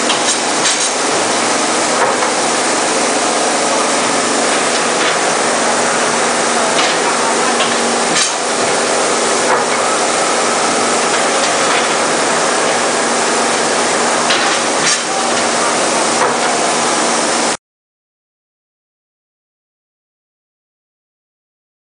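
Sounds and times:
machine mechanical din: 0.0s - 17.6s
sharp metallic clanks: 6.8s - 8.4s.

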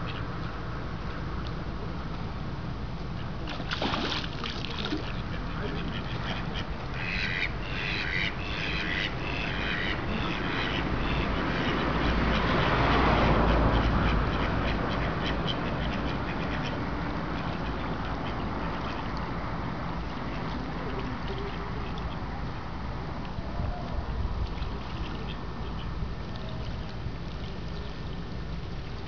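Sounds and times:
ducks quacking: 5.0s - 19.2s.

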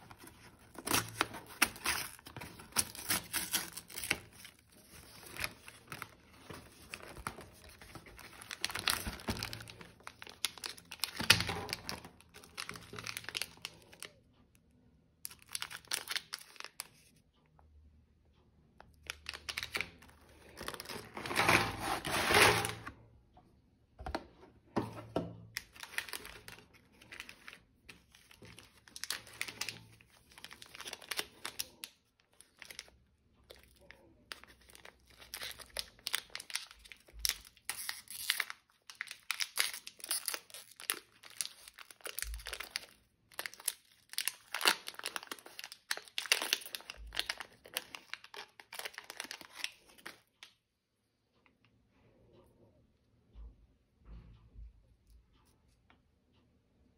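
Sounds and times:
packet tearing open: 0.0s - 14.1s, 15.3s - 16.9s, 19.0s - 22.9s, 25.6s - 32.9s, 34.3s - 50.2s
plastic wrappers crinkling: 0.0s - 14.2s, 15.3s - 17.1s, 19.0s - 22.9s, 25.5s - 50.4s.

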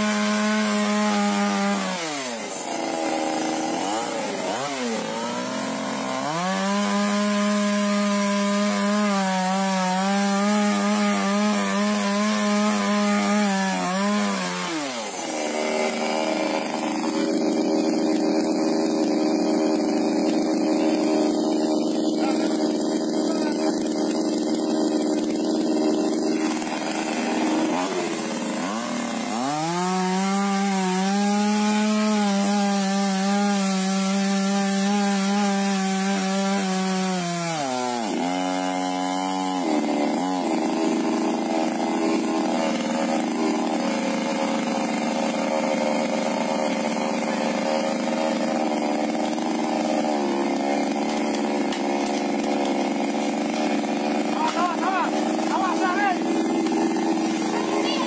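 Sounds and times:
chainsaw cutting branch: 0.0s - 58.0s.

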